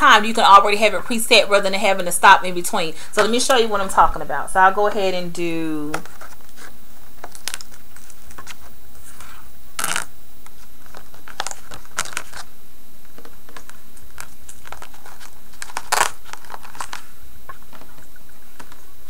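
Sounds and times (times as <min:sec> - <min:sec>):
laminated pages rustling and clicking: 0:05.9 - 0:12.5, 0:13.1 - 0:18.9.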